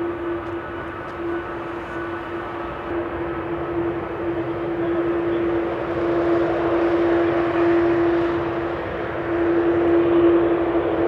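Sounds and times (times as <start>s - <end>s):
jet engines idling: 0.0s - 11.0s.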